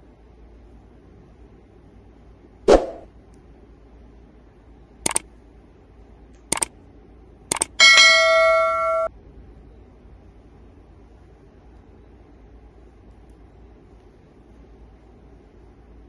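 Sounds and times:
mouse clicks: 0:06.4 - 0:06.7, 0:07.5 - 0:07.8
notification bell ding: 0:07.5 - 0:09.1.

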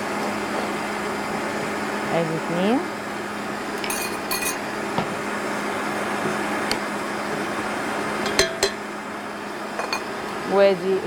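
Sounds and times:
spoon clinking dishes: 0:03.8 - 0:04.6.

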